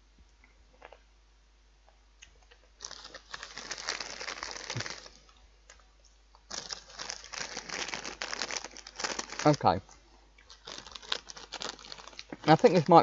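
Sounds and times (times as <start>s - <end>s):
crisp packet crinkling: 2.8s - 5.3s, 6.4s - 9.8s, 10.4s - 13.0s.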